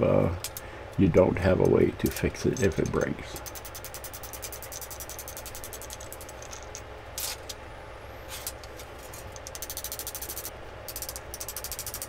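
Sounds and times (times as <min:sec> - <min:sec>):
rapid metallic ticking: 0:02.0 - 0:06.8, 0:09.3 - 0:12.0.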